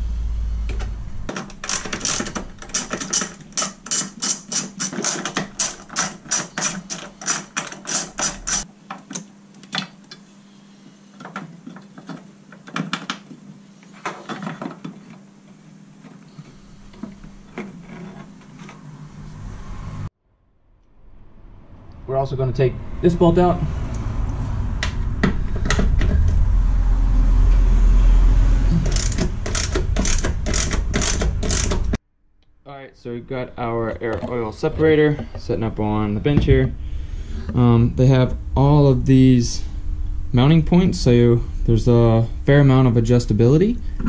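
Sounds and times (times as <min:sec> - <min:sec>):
ratchet wrench clicking: 0:01.7 - 0:08.7, 0:28.9 - 0:32.0.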